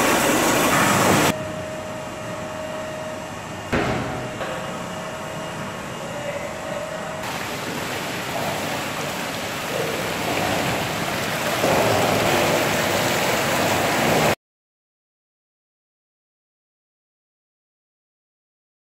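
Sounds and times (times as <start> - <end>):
grapes pouring down metal chute: 7.2 - 14.4.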